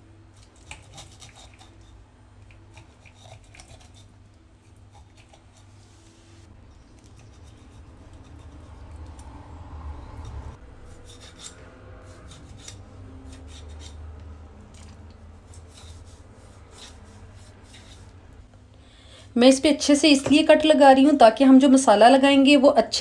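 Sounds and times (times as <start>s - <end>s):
knife cutting raw chicken: 0.3s - 5.7s, 10.2s - 18.1s
knife scraping wooden cutting board: 0.4s - 2.0s, 2.7s - 4.1s, 10.9s - 14.1s, 14.8s - 18.2s.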